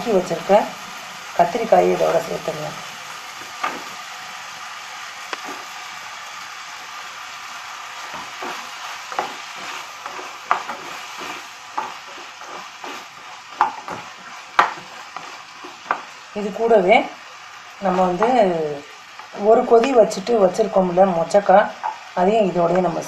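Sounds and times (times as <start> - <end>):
vegetables sizzling in oil: 0.0 - 23.0
wooden spatula scraping a pan: 8.0 - 16.1.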